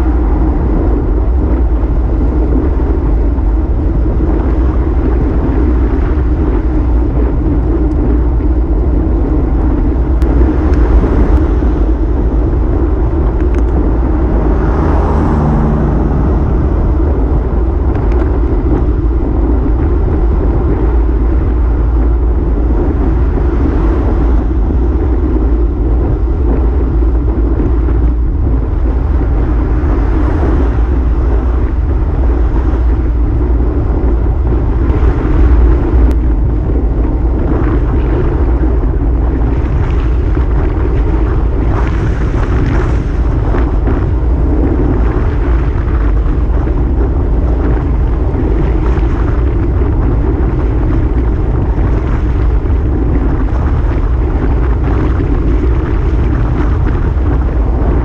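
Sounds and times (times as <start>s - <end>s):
wind buffeting microphone: 0.0s - 58.0s
car passing: 10.3s - 19.6s.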